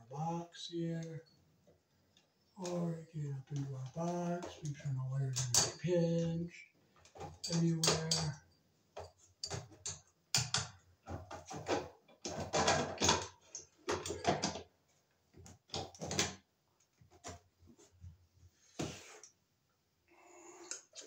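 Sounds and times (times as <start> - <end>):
wires clicking and rustling: 0.9 - 8.4, 9.0 - 14.7.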